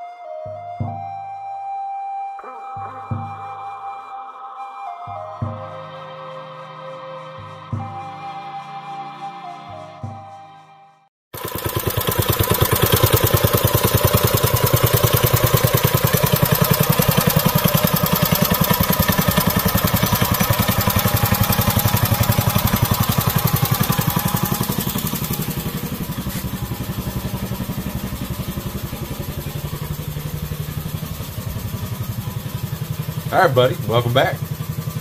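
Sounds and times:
small engine running: 11.4 - 35.0.

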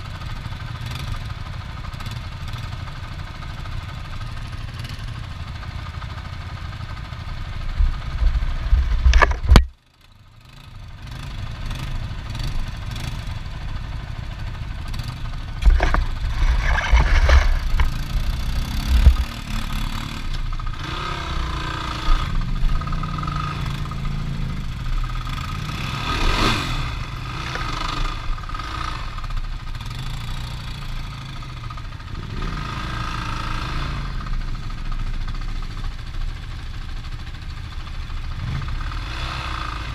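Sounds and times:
vehicle engine revving: 14.8 - 31.4, 32.1 - 34.4, 38.4 - 39.9.

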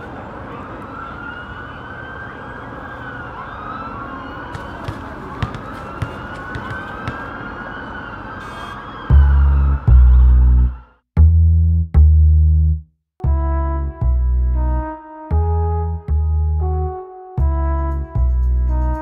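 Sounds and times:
city traffic noise: 0.0 - 10.9
emergency siren wailing: 0.0 - 11.0.

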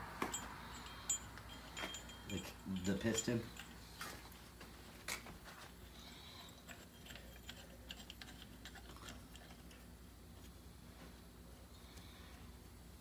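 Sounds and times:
metal parts clicking and tapping: 0.2 - 3.8.

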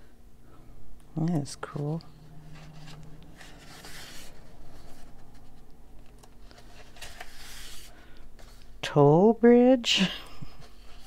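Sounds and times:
paper rustling and rubbing: 1.6 - 8.7, 10.4 - 11.0
soft page swishes: 1.7 - 5.6.

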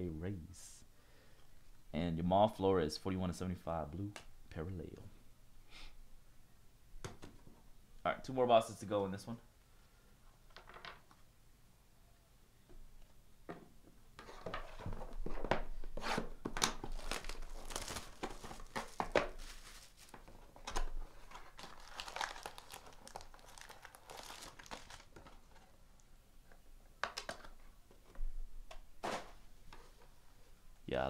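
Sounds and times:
tearing and crinkling cardboard: 14.2 - 25.8
packs set on table: 14.4 - 25.6.

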